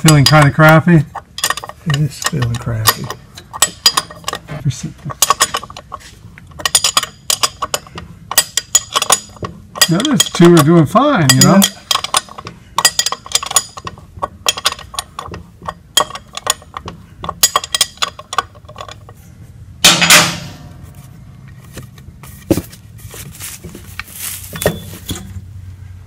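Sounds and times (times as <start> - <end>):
wrench clicking on metal bolts: 0.0 - 4.5, 5.1 - 19.2
ringing metallic clang: 19.8 - 20.8, 24.5 - 25.4.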